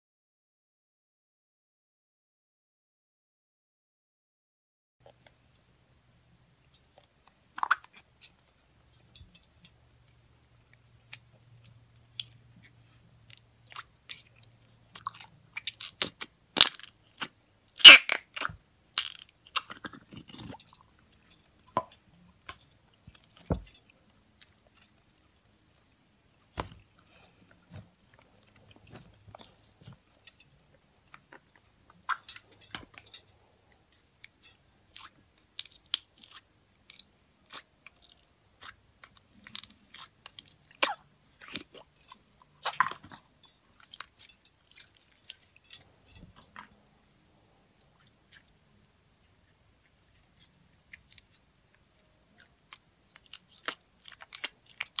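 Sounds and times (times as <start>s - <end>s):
slime squishing: 11.1s - 20.8s, 34.9s - 41.9s, 49.2s - 55.0s.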